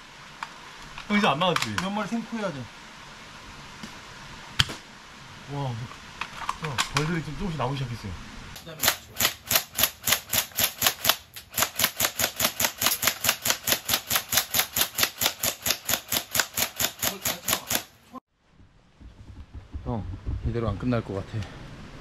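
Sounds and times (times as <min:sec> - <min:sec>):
airsoft gun rapid shots: 0:08.8 - 0:17.9.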